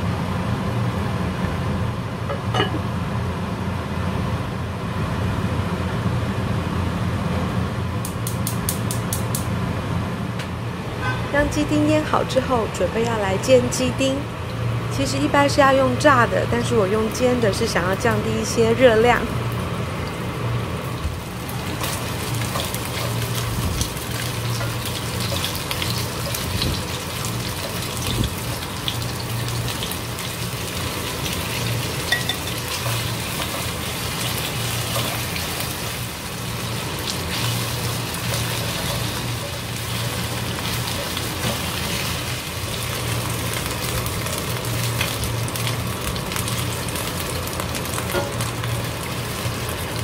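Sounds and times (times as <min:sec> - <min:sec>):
chicken sizzling in frying pan: 0:17.4 - 0:50.0.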